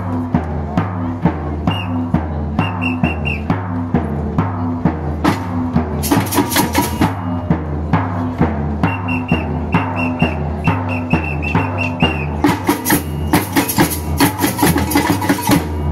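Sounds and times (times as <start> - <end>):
surdo bass drum: 0.0 - 15.9
stick strokes on small drums: 5.2 - 8.9, 10.2 - 15.9.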